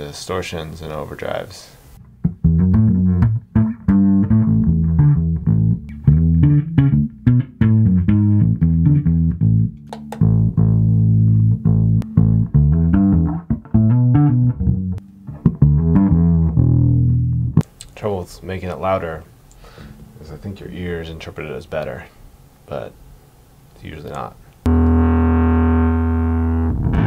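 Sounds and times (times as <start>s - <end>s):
distorted electric bass riff: 2.1s - 17.6s, 24.6s - 27.0s.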